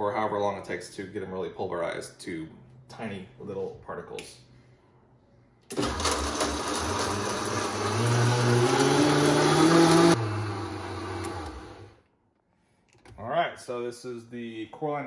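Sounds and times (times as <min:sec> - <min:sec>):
blender motor running: 0:05.7 - 0:12.0.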